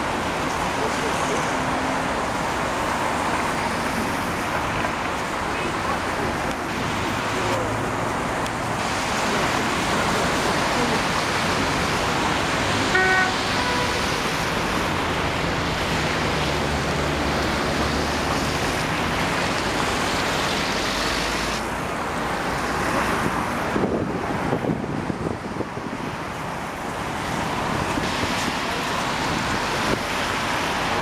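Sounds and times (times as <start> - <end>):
city street traffic: 0.0 - 31.0
car horn honking: 12.9 - 14.0.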